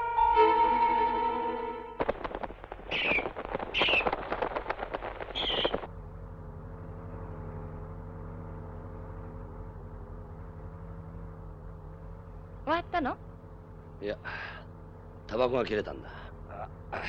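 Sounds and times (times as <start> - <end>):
wings fluttering: 2.0 - 6.0
shrill falling screeches: 2.8 - 4.2.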